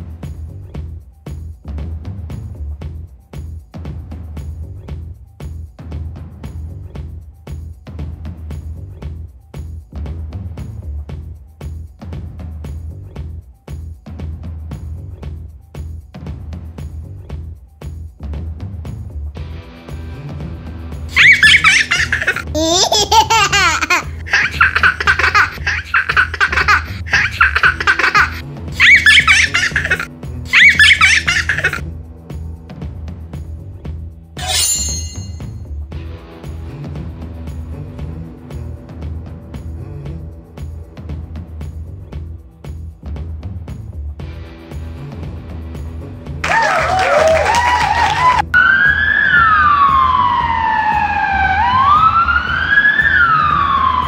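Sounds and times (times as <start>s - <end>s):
background music with steady beat: 0.0s - 54.0s
child laughing: 21.1s - 31.8s, 46.4s - 48.4s
bouncy musical jingle: 34.4s - 35.6s
emergency vehicle siren wailing: 48.0s - 54.0s.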